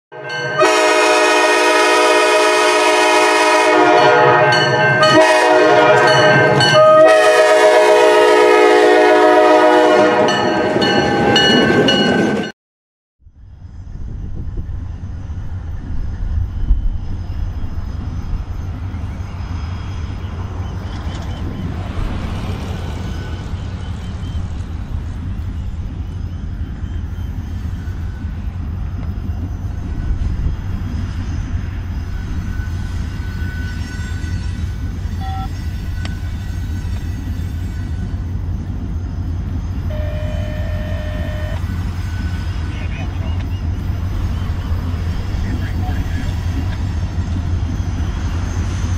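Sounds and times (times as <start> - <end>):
train horn: 0.1 - 11.6, 32.5 - 38.2, 39.8 - 42.4
distant locomotive rumble: 0.2 - 12.5, 13.2 - 48.9.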